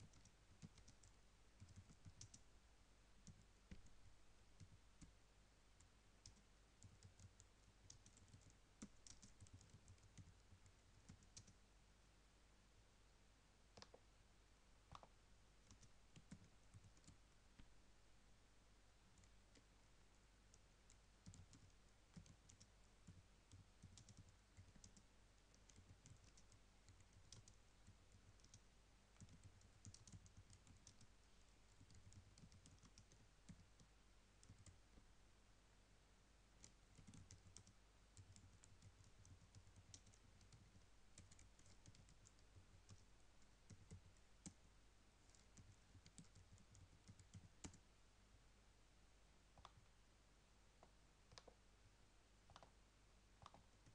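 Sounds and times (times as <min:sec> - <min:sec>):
typing on a keyboard: 0:00.0 - 0:02.4, 0:06.2 - 0:11.6, 0:14.9 - 0:17.2, 0:20.5 - 0:28.6, 0:29.2 - 0:31.1, 0:31.8 - 0:33.8, 0:34.4 - 0:34.8, 0:36.6 - 0:43.1, 0:43.7 - 0:44.6, 0:45.3 - 0:47.8, 0:53.4 - 0:53.9
low steady hum: 0:00.0 - 0:53.9.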